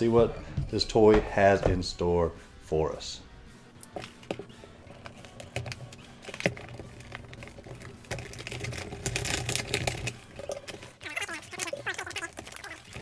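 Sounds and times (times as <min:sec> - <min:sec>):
plastic crackling and clicking: 0:05.0 - 0:13.0.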